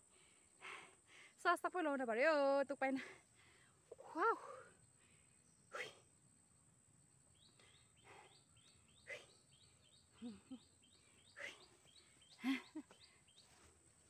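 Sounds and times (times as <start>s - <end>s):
faint high bird chirps: 5.0s - 6.2s, 7.3s - 13.8s.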